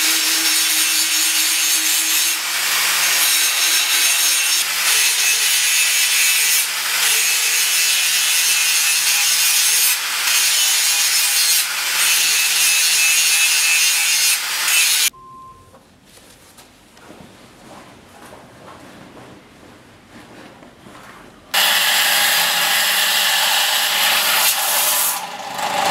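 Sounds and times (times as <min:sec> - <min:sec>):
angle grinder grinding steel: 0:00.0 - 0:15.1, 0:21.6 - 0:25.9.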